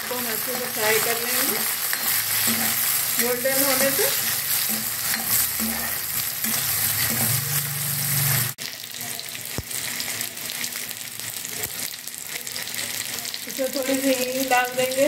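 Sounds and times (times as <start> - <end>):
onions and spices sizzling in oil: 0.0 - 15.0
steel ladle stirring: 1.3 - 8.0.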